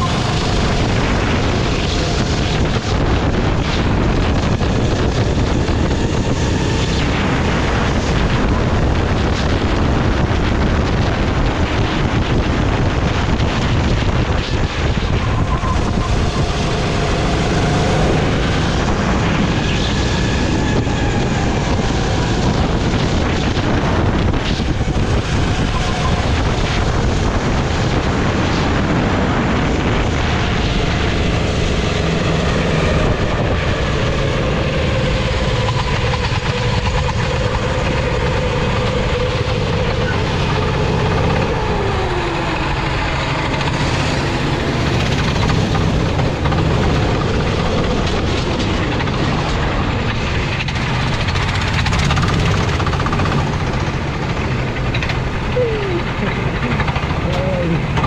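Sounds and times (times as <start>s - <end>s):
go-kart engine at speed: 0.0s - 58.0s
wind buffeting microphone: 0.0s - 58.0s.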